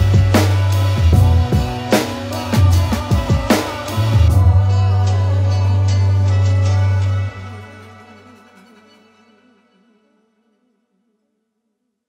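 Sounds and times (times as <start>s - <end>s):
deep bass note: 0.0s - 2.0s, 2.6s - 7.4s
hip hop drums: 0.0s - 7.9s.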